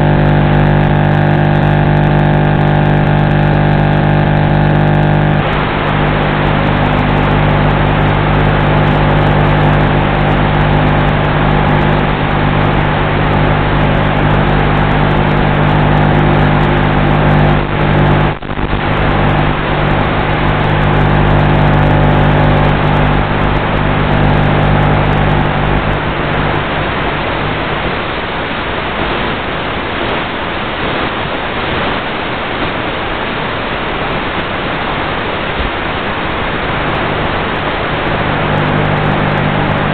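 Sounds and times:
electric motor hum: 0:00.0 - 0:27.5, 0:37.8 - 0:39.9.

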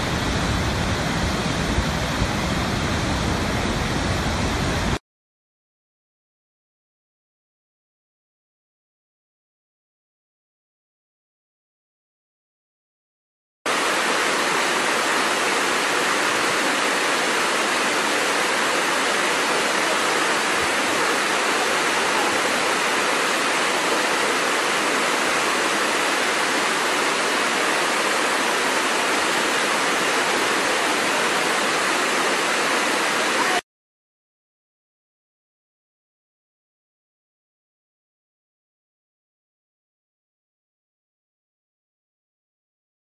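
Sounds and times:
waterfall rushing: 0:00.0 - 0:05.0, 0:13.7 - 0:33.6.

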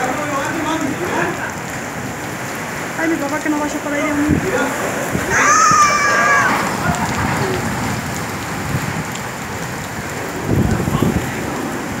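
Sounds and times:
heavy rain pouring: 0:00.0 - 0:12.0
wind rushing: 0:04.1 - 0:12.0.

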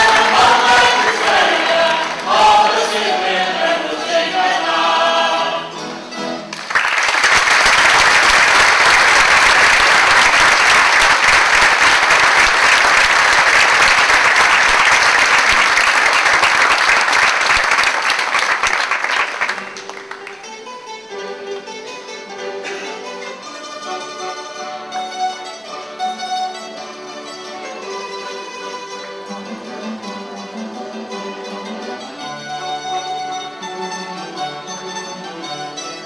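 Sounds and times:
audience applause: 0:00.0 - 0:04.9, 0:06.5 - 0:20.5
mixed choir singing: 0:00.0 - 0:05.9.

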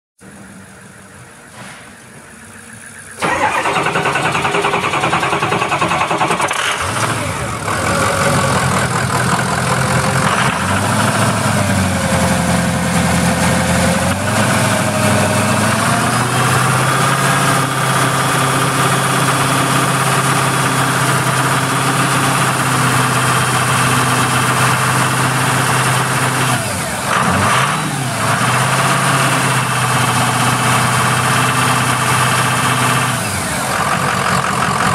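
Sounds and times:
van engine idling: 0:00.2 - 0:13.7, 0:28.2 - 0:34.9.

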